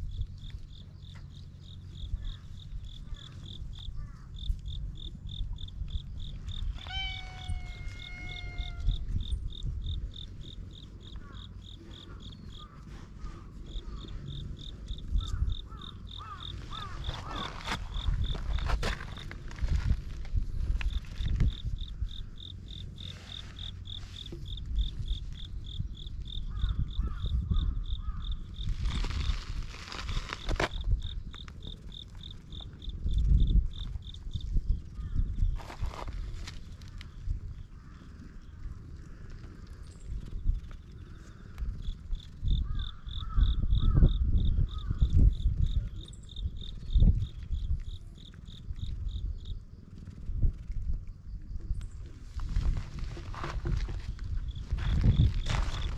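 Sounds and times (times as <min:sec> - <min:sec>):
uneven low rumble: 0:00.0 - 0:29.7
insect chirping: 0:00.0 - 0:55.9.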